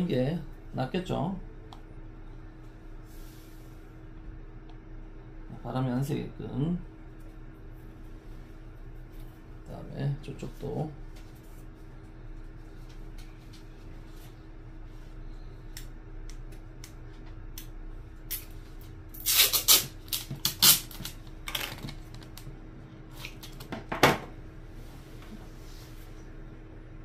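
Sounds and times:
adhesive tape tearing: 19.2 - 21.6.

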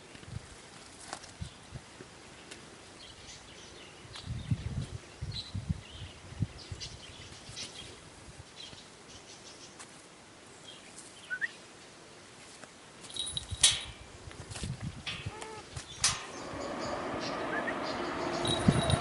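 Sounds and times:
faint bird chirps: 10.6 - 11.6.

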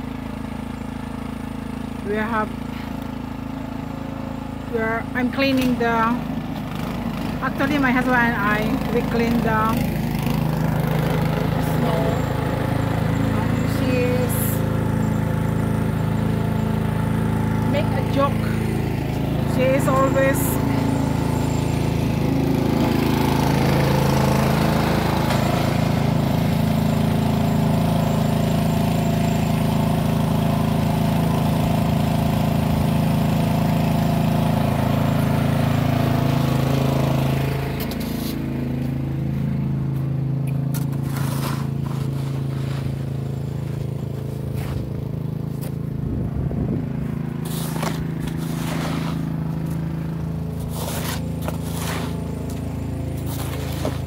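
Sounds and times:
engine running: 0.0 - 54.0
snow shovel scraping snow: 37.8 - 38.5, 40.7 - 45.8, 47.3 - 54.0.

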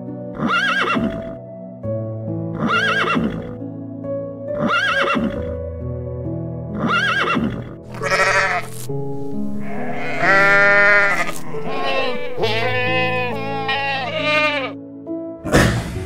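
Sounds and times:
background music: 0.0 - 16.0
goat or sheep bleating: 7.9 - 8.9, 9.6 - 14.8.

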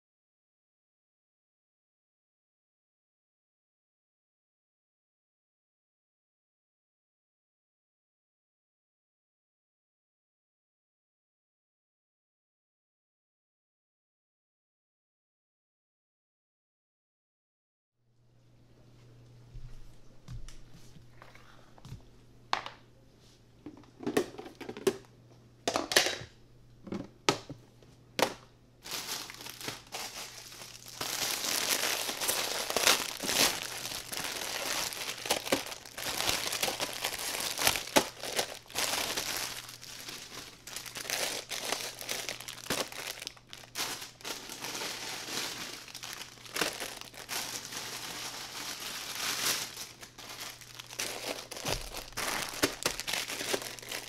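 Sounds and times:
plastic wrappers crinkling: 28.8 - 54.0.

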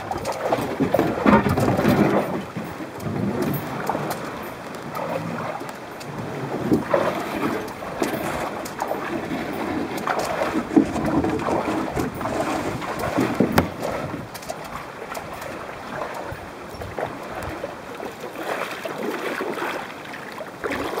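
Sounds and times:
water splashing against boat hull: 0.0 - 21.0
knocks on boat hull: 13.2 - 13.8.

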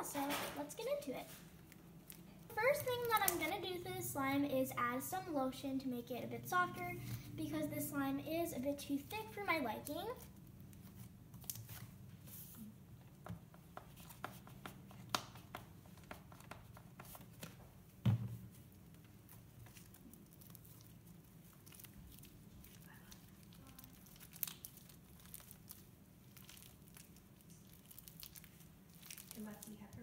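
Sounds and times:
slime squeezed sticky crackles: 0.8 - 3.8, 9.0 - 12.0, 18.8 - 30.0
soft thump: 18.0 - 18.4.

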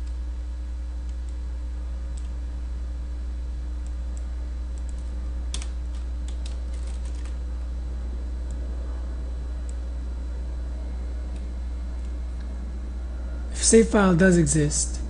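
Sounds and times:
low electrical hum: 0.0 - 15.0
computer keyboard typing: 4.8 - 7.4.

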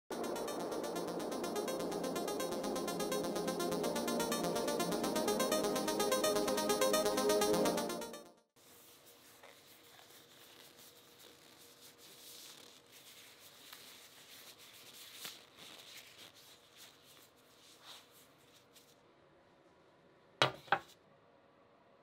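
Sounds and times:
gloves rubbing and rustling: 8.6 - 19.1.

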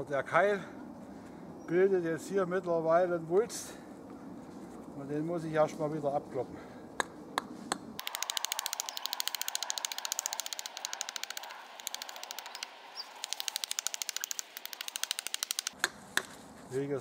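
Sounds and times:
hatchet striking wooden wedge: 8.0 - 16.3.

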